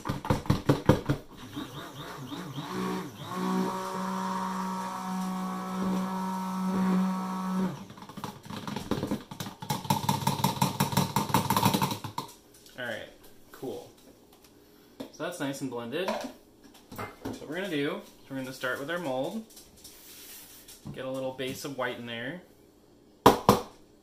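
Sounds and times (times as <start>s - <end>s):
stick blender motor running: 1.3s - 8.1s.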